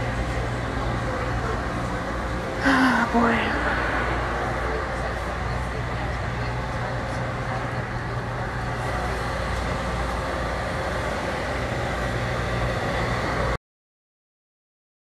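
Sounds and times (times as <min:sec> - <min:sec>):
low hum: 0:00.0 - 0:13.6
even rushing noise: 0:03.0 - 0:07.3.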